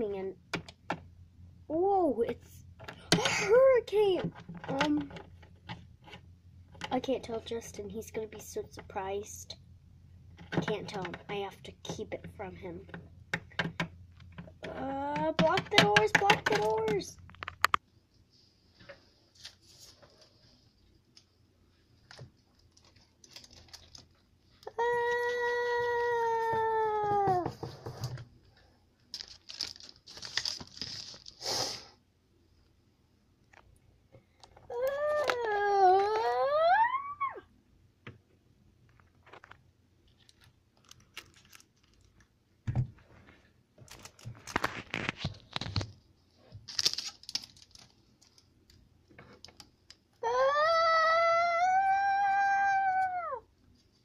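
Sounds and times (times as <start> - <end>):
paper and cardboard handling: 29.2 - 31.4
paper rustling: 29.2 - 31.4, 43.1 - 46.0, 46.6 - 48.4.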